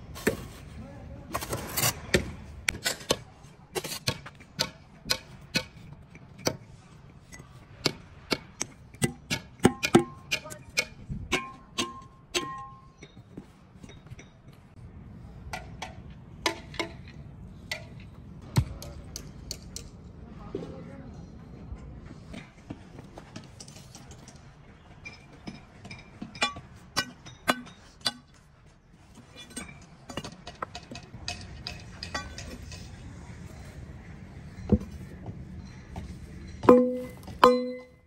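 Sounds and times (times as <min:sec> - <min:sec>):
metal striking metal: 0:36.4 - 0:38.0.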